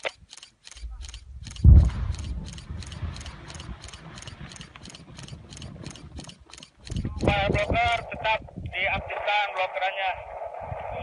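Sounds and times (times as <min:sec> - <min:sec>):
regular ticking: 0:00.0 - 0:08.1
explosion boom and rumble: 0:01.5 - 0:03.8.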